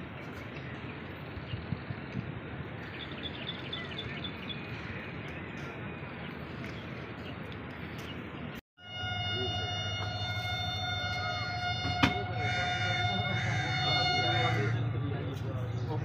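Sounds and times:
birds chirping: 0:00.0 - 0:08.6, 0:12.3 - 0:16.0.

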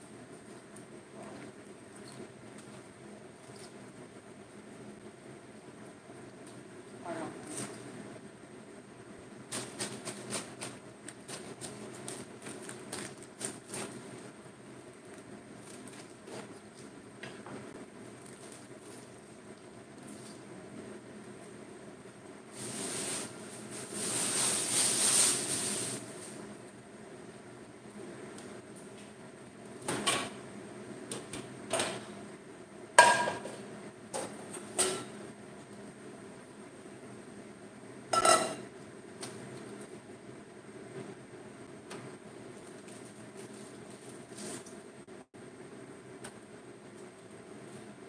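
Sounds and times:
knife cutting cabbage on board: 0:09.5 - 0:14.0
cabbage leaves broken by hand: 0:09.5 - 0:14.1
metal pots clanking: 0:38.2 - 0:38.7.

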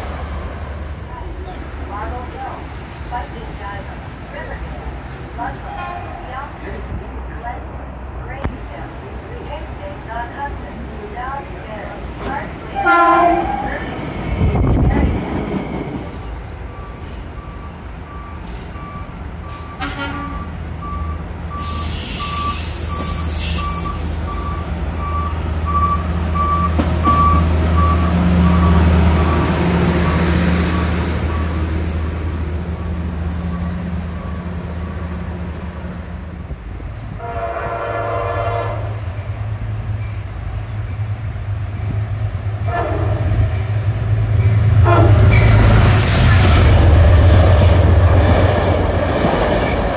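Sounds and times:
low train engine drone: 0:00.0 - 0:49.9
multi-tone train horn: 0:05.7 - 0:06.2, 0:12.7 - 0:13.8, 0:19.7 - 0:20.5, 0:37.2 - 0:39.1, 0:42.6 - 0:43.5, 0:44.7 - 0:45.5
train horn toot: 0:12.8 - 0:13.8, 0:19.7 - 0:20.4, 0:37.2 - 0:39.1, 0:42.6 - 0:43.4, 0:44.8 - 0:45.5.

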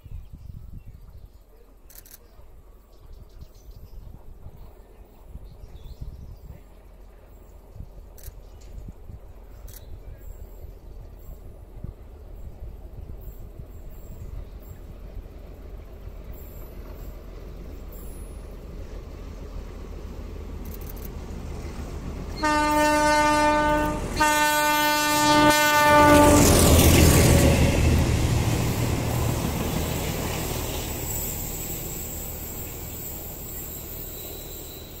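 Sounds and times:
locomotive engine passing: 0:06.7 - 0:35.0
diesel locomotive horn: 0:22.2 - 0:27.9.

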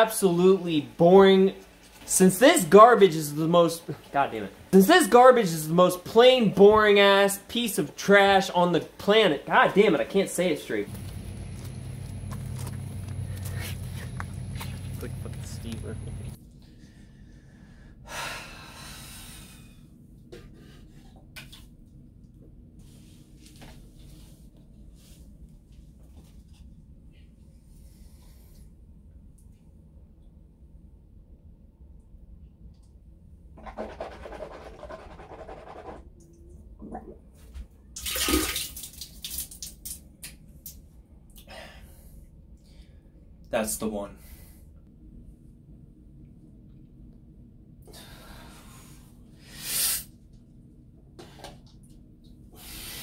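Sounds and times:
breathy exhale: 0:47.9 - 0:50.1.

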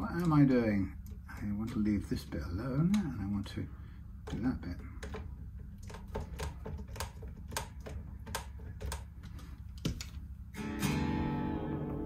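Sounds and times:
screwdriver clicks and taps: 0:05.0 - 0:10.2
electric guitar chord strummed: 0:10.6 - 0:12.0.

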